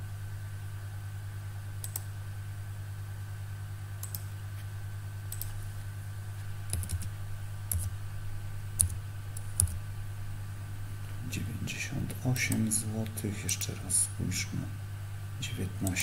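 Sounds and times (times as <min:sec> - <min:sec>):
computer keyboard typing: 0:04.0 - 0:04.3, 0:05.3 - 0:05.6, 0:06.7 - 0:07.1, 0:07.7 - 0:07.9, 0:08.8 - 0:09.8.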